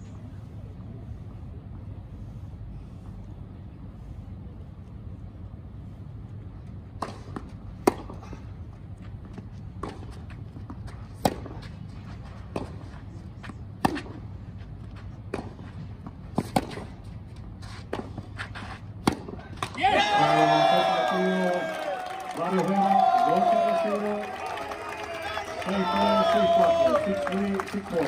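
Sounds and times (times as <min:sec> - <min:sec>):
tennis racket hitting ball: 0:09.3 - 0:13.0, 0:13.8 - 0:14.2, 0:15.3 - 0:17.0, 0:17.9 - 0:19.8.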